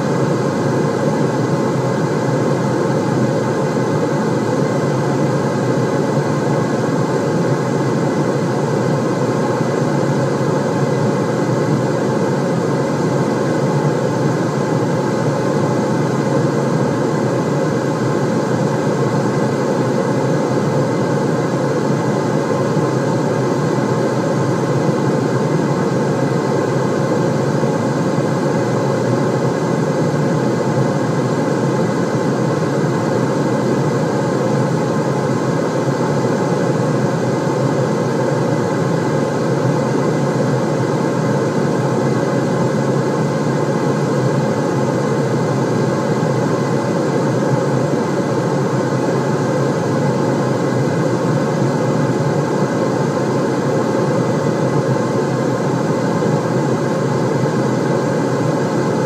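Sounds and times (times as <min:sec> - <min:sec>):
deep white noise rushing: 0:00.0 - 0:59.0.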